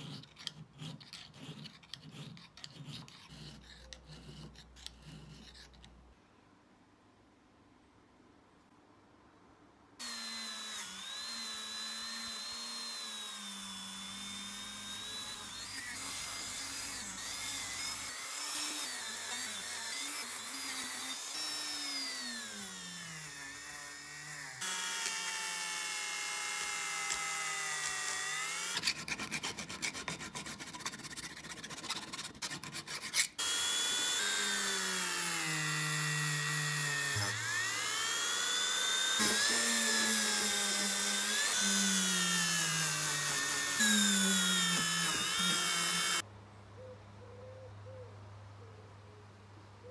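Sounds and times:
rotary tool whining on metal: 0.0 - 6.0, 10.0 - 29.9, 32.6 - 46.2.

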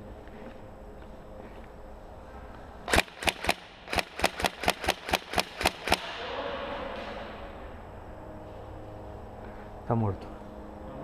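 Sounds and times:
airsoft rifle shots: 2.9 - 7.4.

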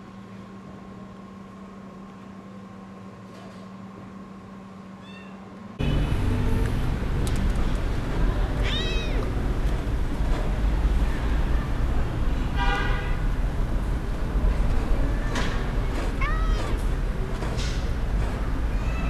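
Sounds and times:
kitten meowing: 8.6 - 9.3.

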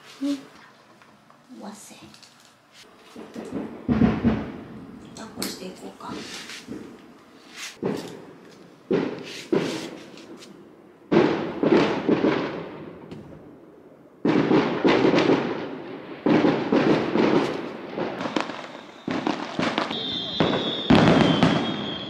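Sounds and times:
fireworks bangs and crackles: 3.1 - 7.0, 7.8 - 10.5, 11.1 - 13.6, 14.2 - 22.0.

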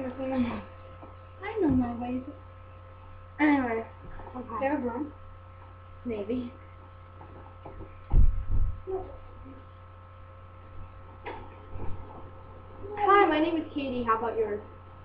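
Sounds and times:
electrical mains hum: 0.0 - 15.0
heavy low thumps: 8.0 - 9.0.

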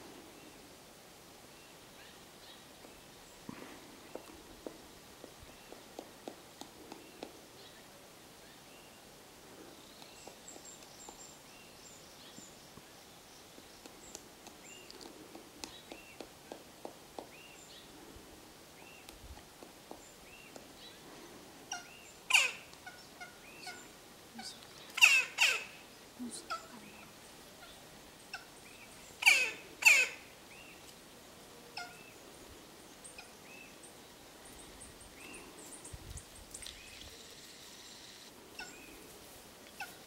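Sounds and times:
woodpecker harsh calls: 21.7 - 30.7, 31.8 - 32.1, 37.0 - 39.0.

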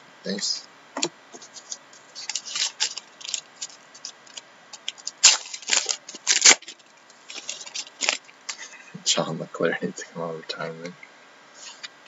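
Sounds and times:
card pack wrapper tearing and crinkling: 1.6 - 8.3.

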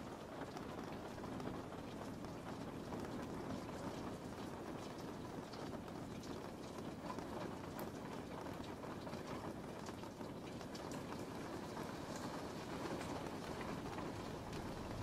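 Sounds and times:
rain drop ticks: 0.0 - 15.0
heavy rain hissing: 11.3 - 15.0.

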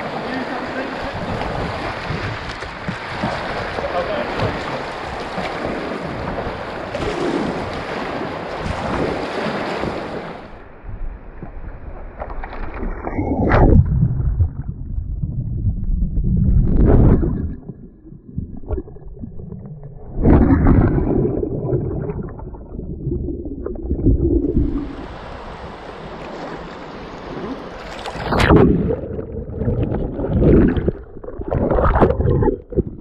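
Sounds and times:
rushing whitewater: 0.0 - 10.6
paddle splashes and sloshing: 0.0 - 10.7, 11.4 - 14.8, 20.0 - 33.0.

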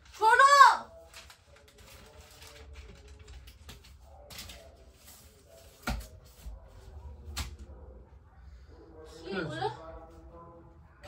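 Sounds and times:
rustling of book pages: 0.9 - 7.5.

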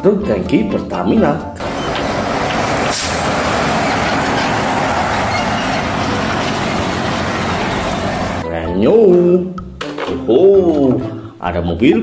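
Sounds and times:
truck driving past: 1.6 - 8.4
short air hiss: 2.8 - 3.3.

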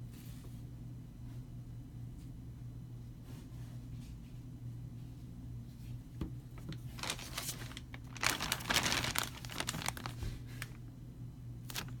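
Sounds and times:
faint steady hum: 0.0 - 12.0
plastic bag crinkling: 6.6 - 10.8, 11.7 - 12.0.

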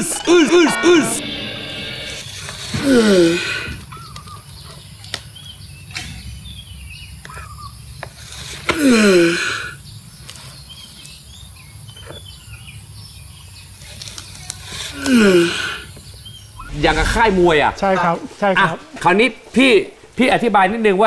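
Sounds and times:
tortoise grunt: 14.8 - 15.9.

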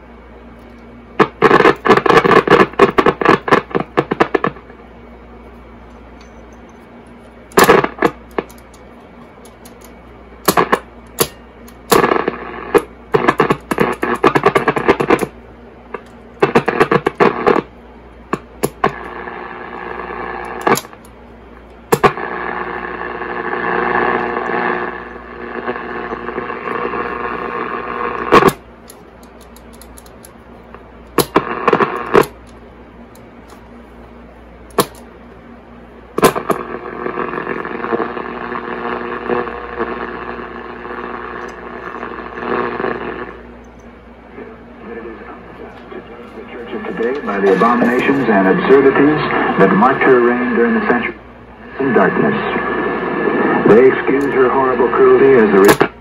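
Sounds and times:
low hum: 0.0 - 56.0
radio tuning crackles and clicks: 0.7 - 4.8, 7.2 - 33.6, 36.2 - 56.0
muffled radio station audio: 1.1 - 4.9, 7.3 - 28.7, 29.4 - 32.5, 33.5 - 56.0
radio static bursts: 1.2 - 4.8, 7.5 - 8.5, 10.4 - 21.0, 21.9 - 28.7, 30.7 - 32.4, 36.2 - 43.6, 44.3 - 56.0.

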